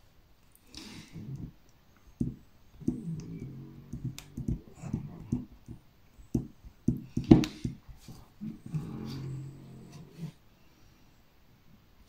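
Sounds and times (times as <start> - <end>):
stylus tip tapping and clicking: 3.9 - 7.8.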